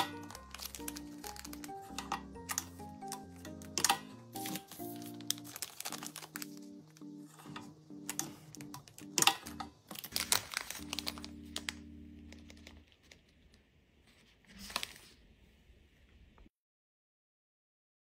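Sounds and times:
soft background music: 0.0 - 13.2
plastic bags crinkling: 0.0 - 13.6.

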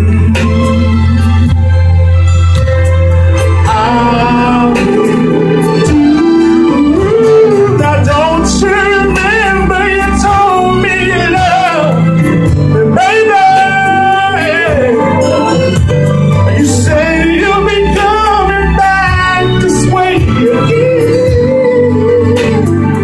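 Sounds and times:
man singing into microphone: 0.0 - 1.8, 3.6 - 23.0
backing music with bass line: 0.0 - 23.0.

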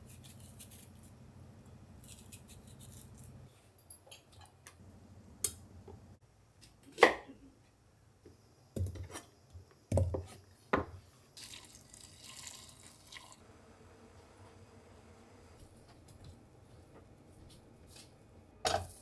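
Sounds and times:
water running into steel pot: 11.4 - 13.4.

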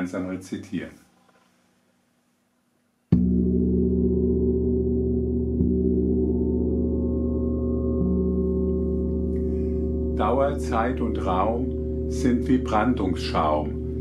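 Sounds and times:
gong struck and ringing: 3.2 - 14.0.

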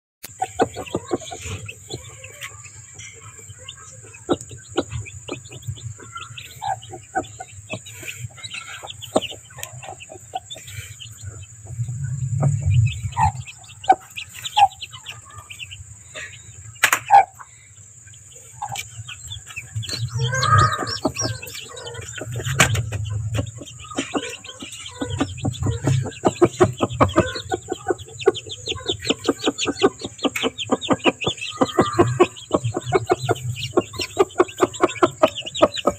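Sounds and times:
chicks peeping: 0.2 - 35.9
hen clucking: 0.2 - 35.9.

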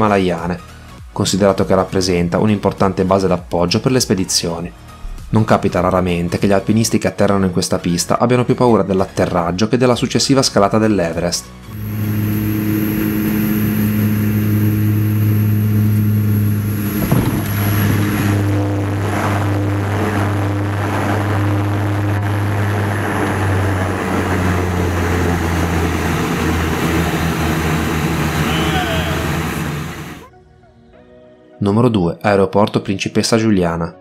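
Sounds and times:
rushing noise of plane rolling: 11.7 - 30.3
turboprop engines droning: 11.7 - 30.3
wheels touching down thump: 17.0 - 17.6.

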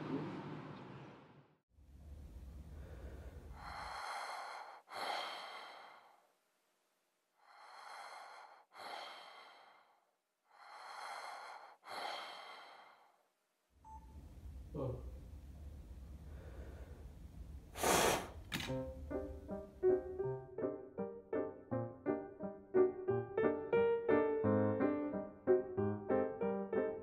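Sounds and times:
slow deep breathing: 2.2 - 6.4, 7.3 - 13.4, 16.1 - 18.4.

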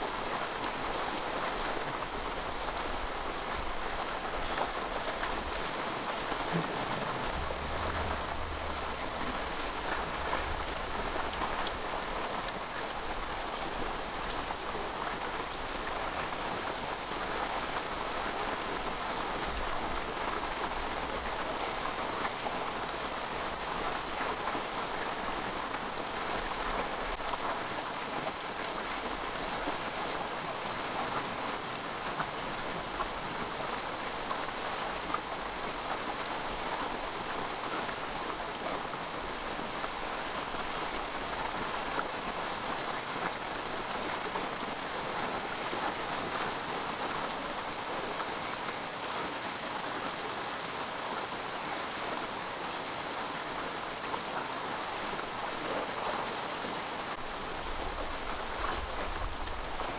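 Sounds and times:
steady rain: 0.0 - 59.9
low rumble: 6.6 - 11.2.

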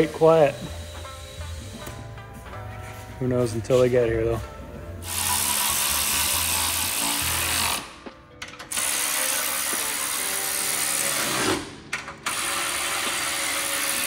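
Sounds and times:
pneumatic air ratchet running: 0.0 - 2.0, 5.0 - 8.0, 8.6 - 14.0.

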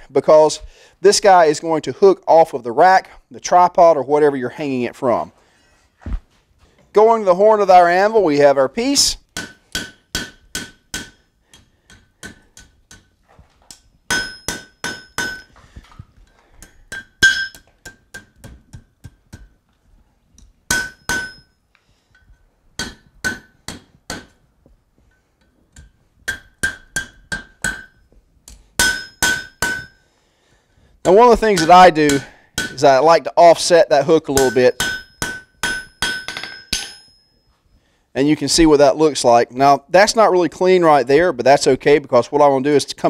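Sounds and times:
anvil ringing: 9.4 - 13.1, 13.7 - 15.6, 16.6 - 18.3, 20.7 - 21.6, 22.8 - 24.4, 26.3 - 28.1, 28.8 - 30.0, 31.5 - 32.8, 34.4 - 37.4
hammer striking hot iron on anvil: 9.4 - 13.1, 13.7 - 15.5, 16.6 - 19.6, 20.7 - 21.5, 22.2 - 24.4, 25.4 - 30.0, 31.6 - 32.8, 34.4 - 37.3.

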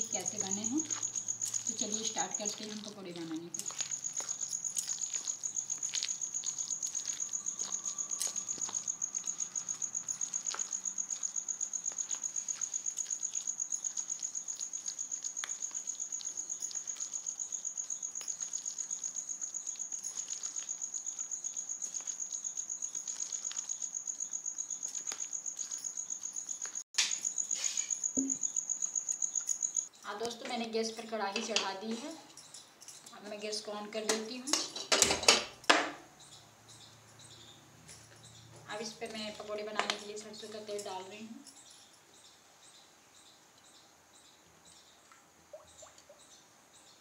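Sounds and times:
batter squelching in a bowl: 0.0 - 29.9
cricket chirping: 0.0 - 47.0.

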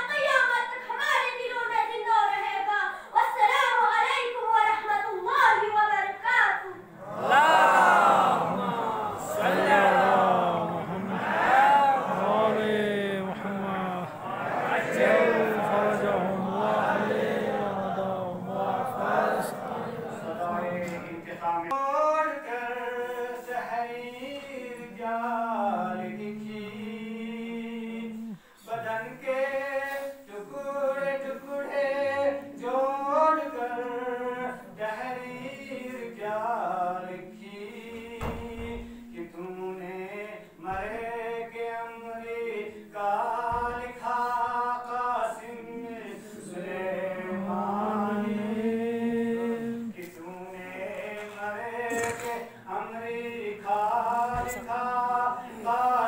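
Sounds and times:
man chanting: 8.6 - 14.8.

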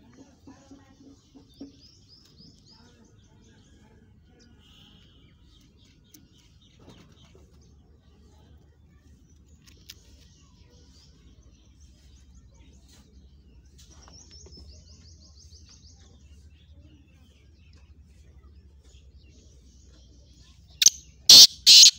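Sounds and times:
faint high bird chirps: 8.2 - 21.9
loud sharp bird call: 20.8 - 21.9
fast run of high notes: 21.3 - 21.9.

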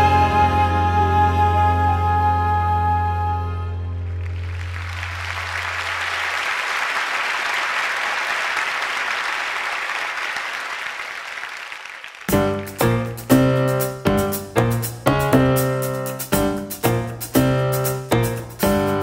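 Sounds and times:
audience applauding: 4.1 - 12.8.

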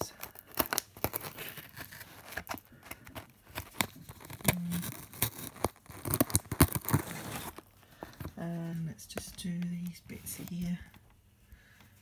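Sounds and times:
tape scraping on cardboard box: 1.0 - 7.7.

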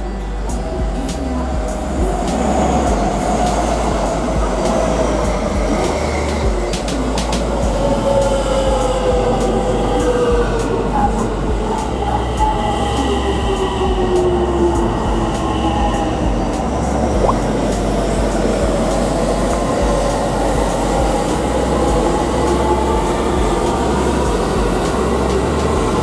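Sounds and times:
electric trains running past: 0.0 - 26.0.

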